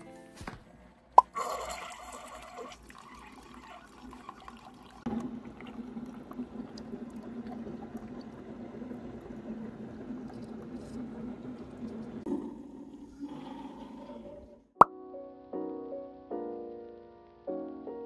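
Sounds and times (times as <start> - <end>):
coffee pouring into mug: 1.2 - 14.4
coffee machine hissing: 1.4 - 14.7
low machine hum: 5.1 - 13.0.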